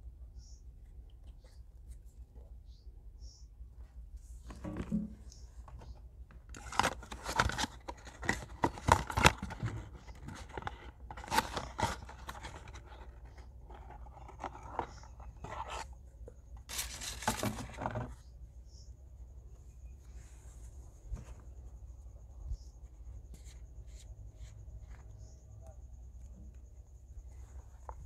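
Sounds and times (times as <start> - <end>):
plastic crinkling: 6.5 - 15.8, 16.7 - 18.1
cardboard scraping: 6.5 - 16.0, 16.6 - 18.2.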